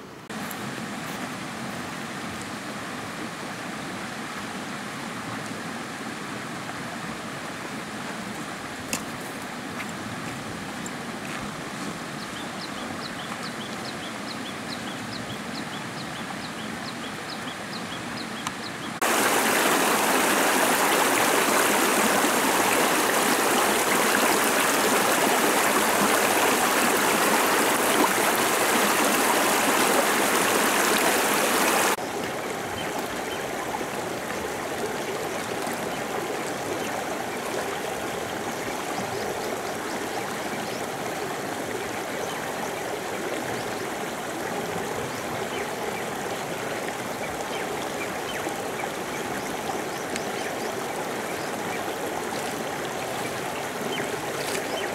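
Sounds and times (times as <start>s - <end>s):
stream rushing over rocks: 0.0s - 17.8s, 18.9s - 54.9s.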